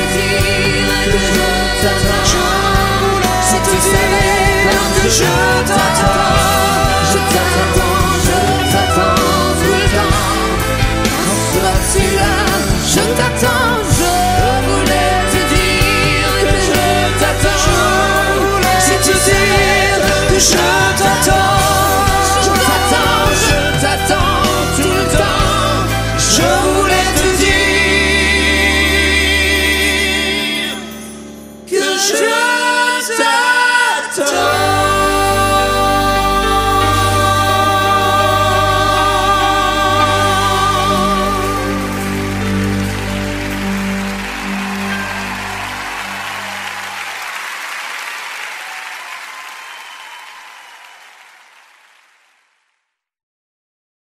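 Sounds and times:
bass line: 0.0 - 31.3, 34.3 - 47.0
person singing: 0.0 - 47.2
slow pop ballad music: 0.0 - 47.4
audience applause: 36.8 - 52.7.

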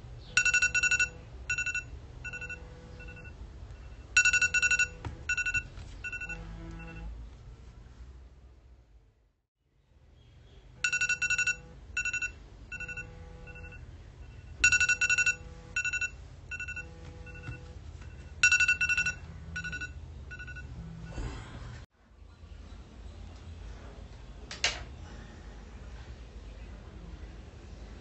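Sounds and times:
phone alarm ringtone: 0.4 - 7.1, 10.8 - 20.7.

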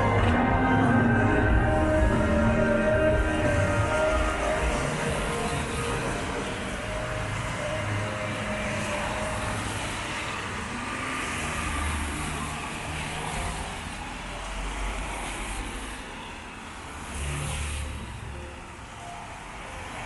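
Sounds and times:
vehicle engine rumbling: 0.0 - 12.7.

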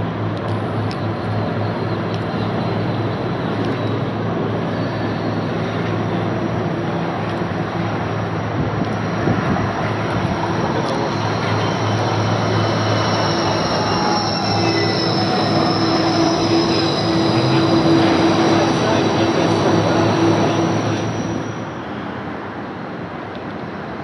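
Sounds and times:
road traffic hum: 0.0 - 24.0
tram approaching: 0.0 - 24.0
faint high whine: 10.0 - 22.1.

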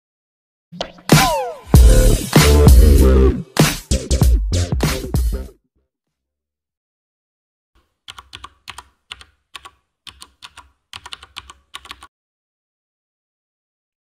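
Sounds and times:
keyboard key clicks: 8.1 - 12.1.

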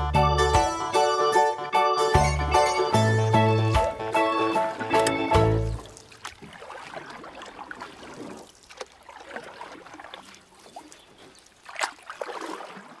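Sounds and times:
water sloshing and gurgling: 3.7 - 13.0.

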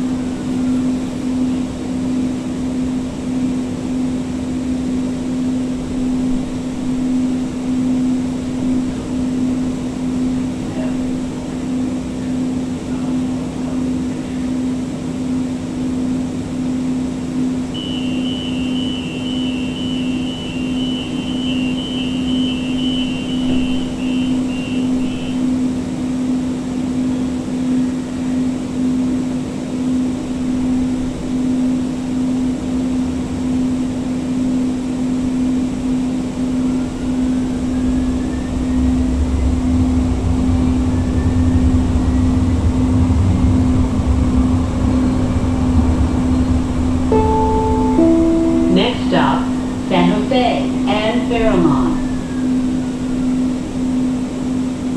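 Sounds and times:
low train running rumble: 0.0 - 54.9
rapid high-pitched door warning beeps: 17.8 - 25.5
steady electrical hum: 45.6 - 54.9.

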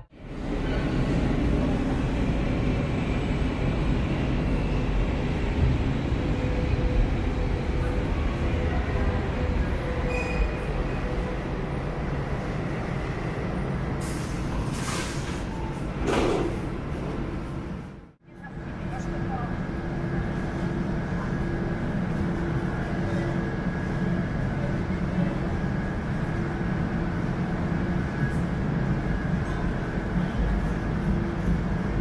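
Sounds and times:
train rumbling on rails: 0.0 - 32.0.

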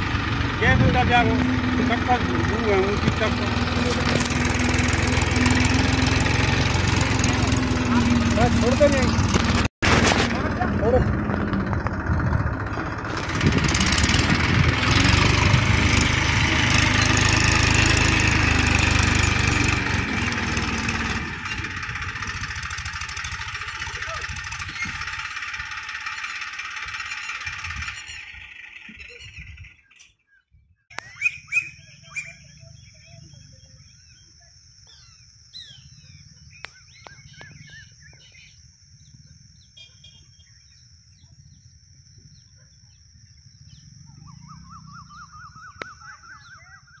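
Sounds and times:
tractor engine running: 0.0 - 30.1
birds chirping: 0.6 - 9.6, 26.0 - 47.0
fast bird trill: 26.0 - 34.3, 34.9 - 41.6, 42.2 - 47.0.

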